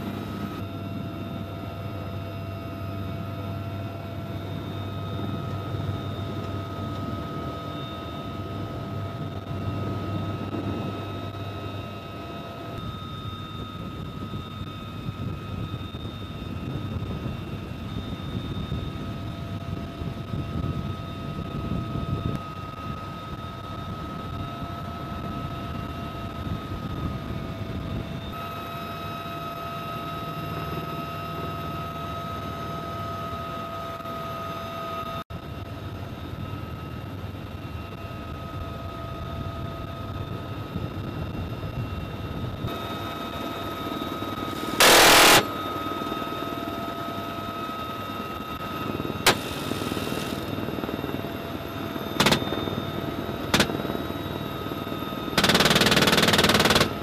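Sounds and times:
helicopter turbine whine: 0:00.0 - 0:57.0
machine-gun burst: 0:44.6 - 0:45.6, 0:49.3 - 0:50.4, 0:52.2 - 0:52.6, 0:55.4 - 0:57.0
sharp gunshots: 0:44.6 - 0:45.6, 0:49.3 - 0:49.8, 0:52.2 - 0:52.6
rotor and airframe rumble: 0:48.5 - 0:57.0.

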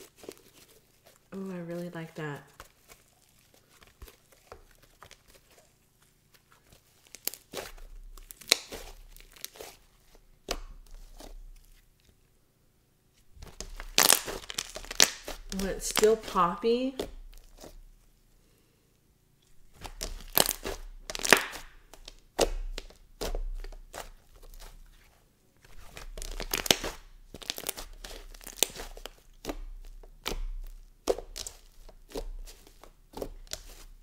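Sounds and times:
slime popping and crackling: 0:00.0 - 0:11.8, 0:13.3 - 0:17.9, 0:19.6 - 0:25.0, 0:25.6 - 0:34.0.

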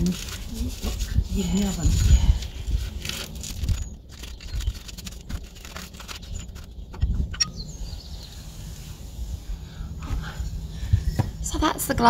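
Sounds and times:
paper and plastic rustling: 0:00.0 - 0:07.3
sharp crackle: 0:00.0 - 0:07.6.

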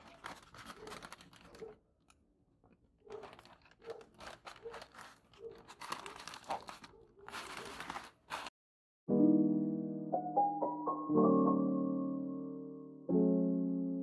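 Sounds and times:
plastic bag crinkling: 0:00.0 - 0:08.5
scissors cutting plastic: 0:00.0 - 0:08.5.

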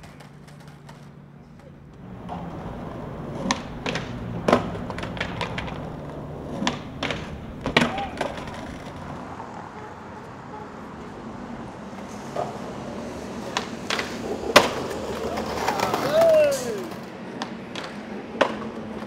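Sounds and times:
skateboard clacking: 0:00.0 - 0:19.0
skateboard tail sliding on stone: 0:00.0 - 0:19.0
skateboard wheels rolling on pavement: 0:00.0 - 0:19.0.

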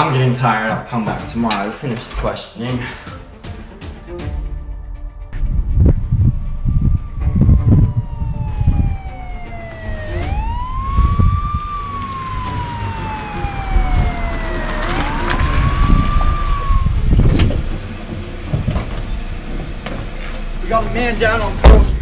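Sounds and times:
low rumbles: 0:01.2 - 0:22.0
police siren wailing: 0:05.9 - 0:17.9.

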